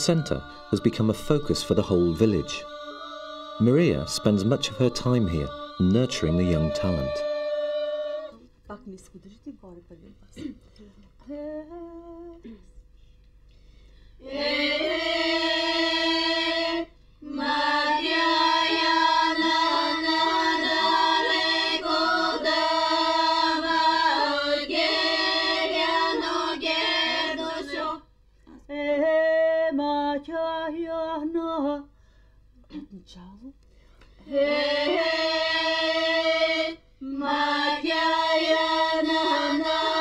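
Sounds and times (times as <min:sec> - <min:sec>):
women singing unaccompanied: 0:00.0 - 0:08.4, 0:14.2 - 0:28.0, 0:34.2 - 0:40.0.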